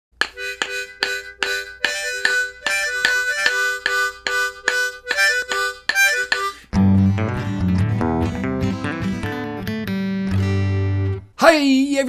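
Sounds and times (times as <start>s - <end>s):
wooden sticks clicking: 0.2s - 6.6s
harmonica playing tune: 0.2s - 11.2s.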